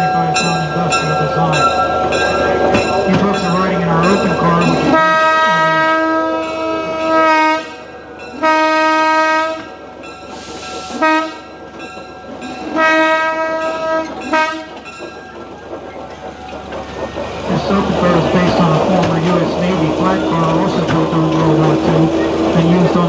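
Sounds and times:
locomotive air horn blasts: 4.9s - 9.7s, 10.9s - 11.5s, 12.8s - 14.8s
hiss: 10.3s - 11.0s.

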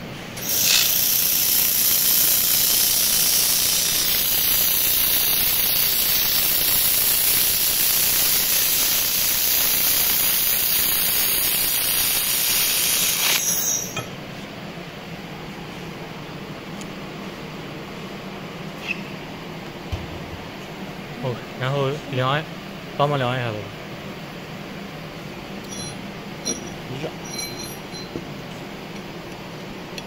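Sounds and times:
welding gun gas hiss: 0.4s - 14.0s.

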